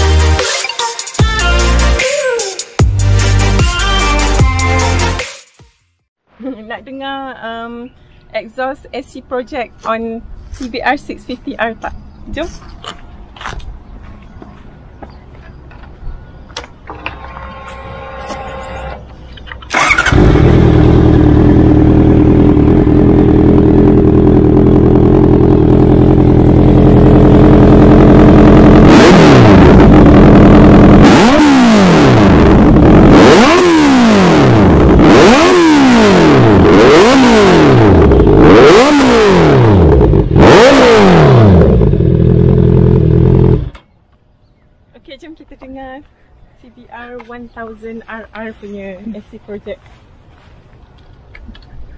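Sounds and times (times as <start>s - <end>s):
motorcycle engine idling and revving: 8.7s - 44.3s.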